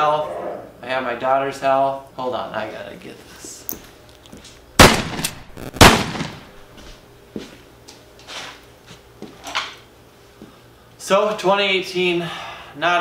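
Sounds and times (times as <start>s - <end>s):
loud sharp bangs: 4.8s - 6.7s.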